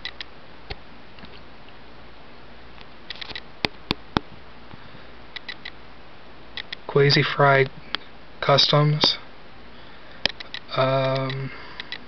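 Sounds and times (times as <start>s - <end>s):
sharp clicks: 0.0s - 0.8s, 3.1s - 4.0s, 5.3s - 5.8s, 6.6s - 6.9s, 10.2s - 12.0s
steady low hum: 0.0s - 12.0s
soft ticks: 10.2s - 12.0s.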